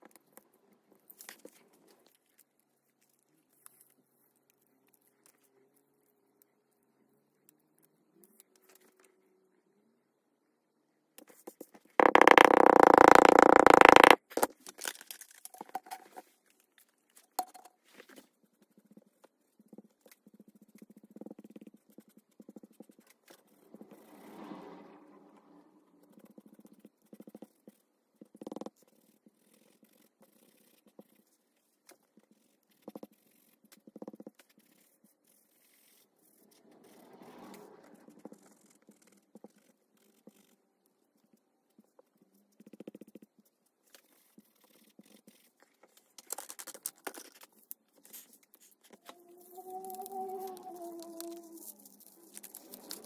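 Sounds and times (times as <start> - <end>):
sponge dabbing through stencil: 25.9 - 53.0
paper crackling: 49.8 - 53.0.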